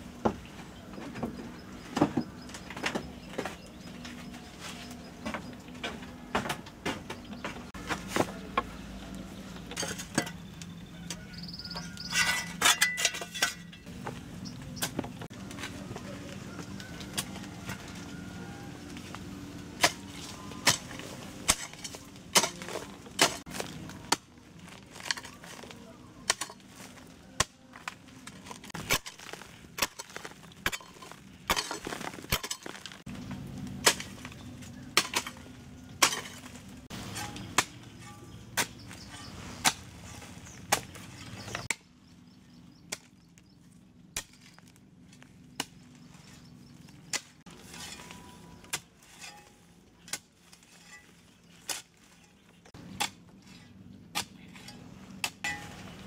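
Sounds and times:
hoe and shovel chopping soil: 19.6s - 42.0s, 42.7s - 56.0s.

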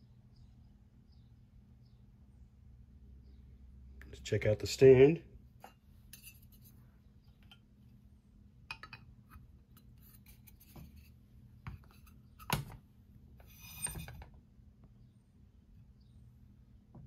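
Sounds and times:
short scraping rattle: 13.4s - 14.3s.

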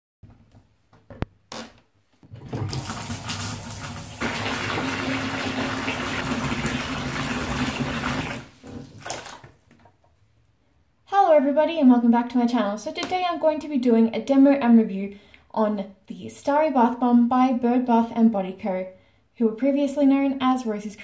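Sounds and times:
water pouring into bathtub: 2.3s - 9.6s.

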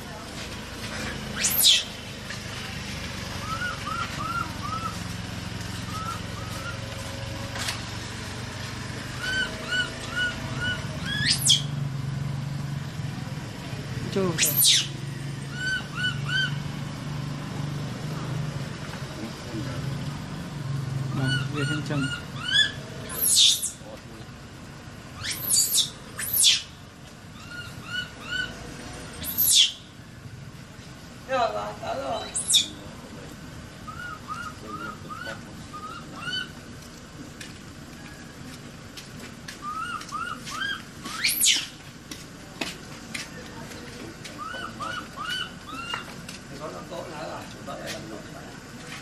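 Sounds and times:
high chirping calls: 1.3s - 2.0s, 3.4s - 5.1s, 5.7s - 6.9s, 9.1s - 11.8s, 14.2s - 16.7s, 21.1s - 23.9s, 25.1s - 30.0s, 32.0s - 33.0s, 33.8s - 36.6s, 39.6s - 41.8s, 44.3s - 46.2s
baby monkey screaming: 1.4s - 1.9s, 9.2s - 11.7s, 14.4s - 14.9s, 15.5s - 16.6s, 21.1s - 23.8s, 25.2s - 26.7s, 27.4s - 28.5s, 29.2s - 29.8s, 32.1s - 32.8s, 33.9s - 36.6s, 39.6s - 41.7s, 44.4s - 46.1s.

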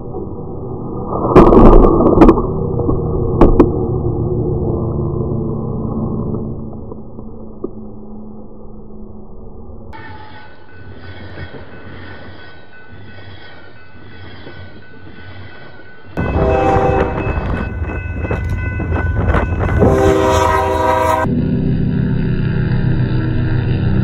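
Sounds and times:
train rumbling: 10.0s - 24.0s
locomotive horn blasts: 16.2s - 21.3s.

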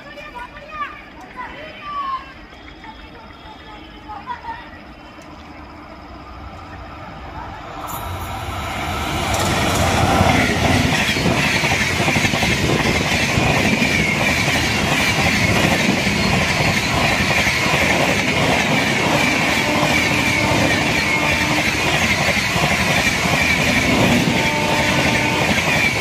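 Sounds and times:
electric locomotive passing: 0.0s - 26.0s
train coaches rushing: 0.0s - 26.0s
high whine: 4.8s - 11.8s.

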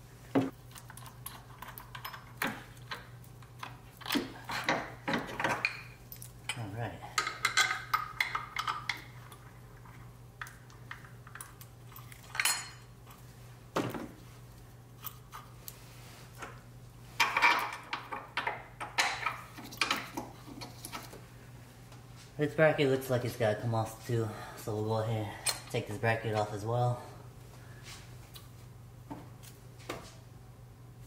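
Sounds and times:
metal tools clinking: 11.9s - 12.9s.

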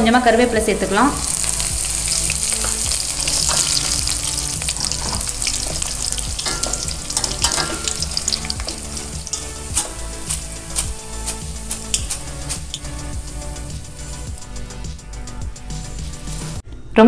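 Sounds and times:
vegetables sizzling in oil: 0.3s - 14.4s
metal utensil clinking pan: 1.2s - 13.0s.

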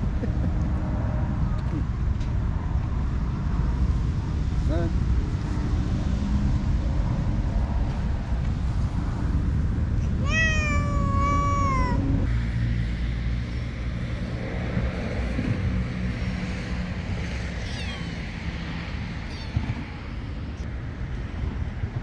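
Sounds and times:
cat meowing: 10.0s - 12.1s, 17.6s - 18.2s, 19.3s - 19.8s.

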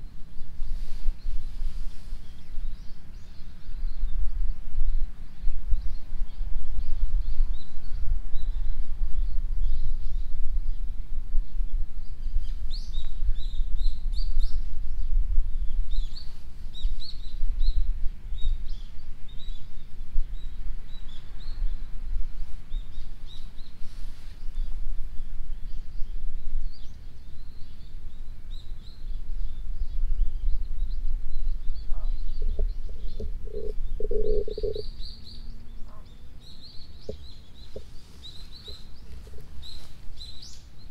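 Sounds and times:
small birds chirping: 0.0s - 40.9s
steady low rumble: 24.4s - 40.9s.

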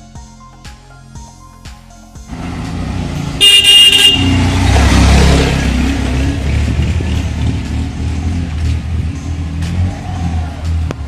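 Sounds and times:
motorcycles passing by: 2.3s - 11.0s.

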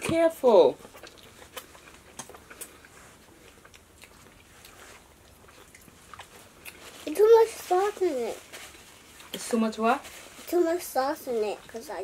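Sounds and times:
person chewing food: 0.8s - 7.0s.

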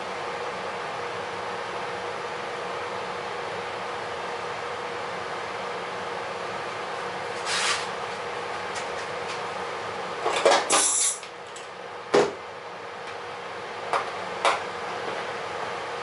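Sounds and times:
steady shop hum: 0.0s - 16.0s
pneumatic rivet gun bursts: 10.7s - 11.2s.

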